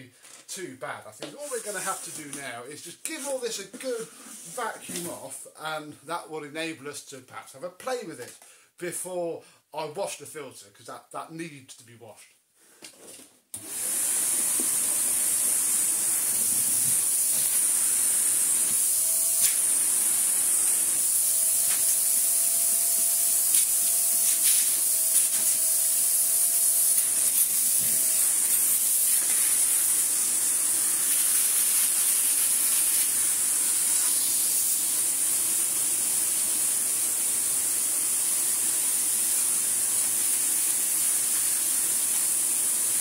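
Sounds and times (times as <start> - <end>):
vacuum nozzle sucking air: 13.6 - 43.0.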